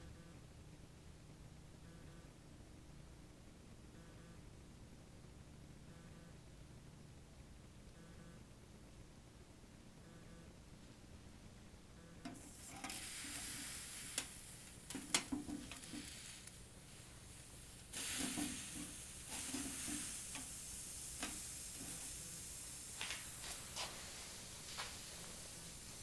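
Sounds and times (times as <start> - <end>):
stove burning with soft hiss: 10.6 - 26.0.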